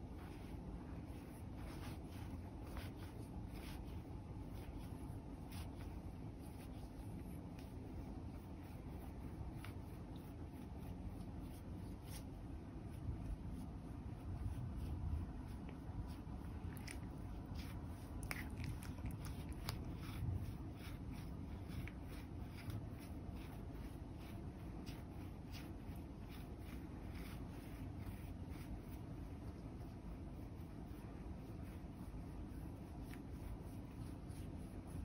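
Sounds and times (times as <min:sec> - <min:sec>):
low steady rumble: 0:00.0 - 0:35.0
massage roller clicking on fur: 0:13.1 - 0:35.0.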